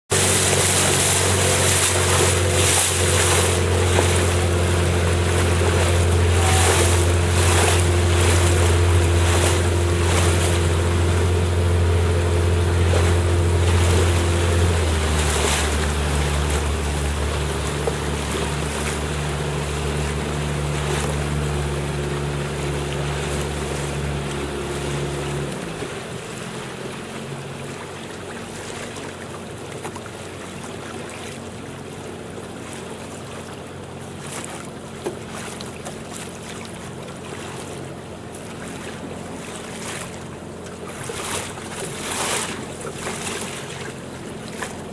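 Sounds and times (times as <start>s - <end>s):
boat motor running: 0.0s - 44.9s
water noise: 0.0s - 44.9s.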